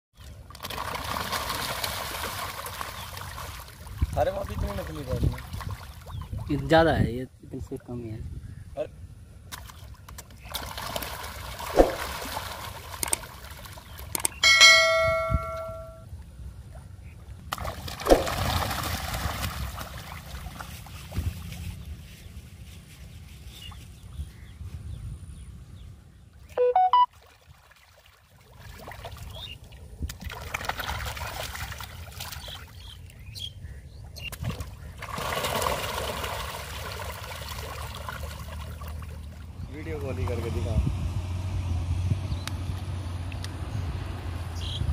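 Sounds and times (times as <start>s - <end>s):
fish splashing in pond: 0.2s - 4.2s, 5.2s - 6.5s, 9.5s - 15.2s, 17.5s - 21.9s, 27.1s - 33.0s, 34.2s - 40.3s
brief ringing tone: 14.4s - 16.1s, 26.6s - 27.1s.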